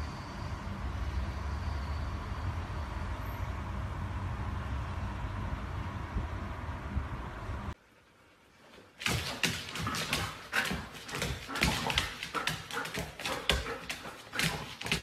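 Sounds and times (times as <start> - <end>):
paws scrabbling on wooden floor: 9.0 - 15.0
dogs vocalising: 9.4 - 15.0.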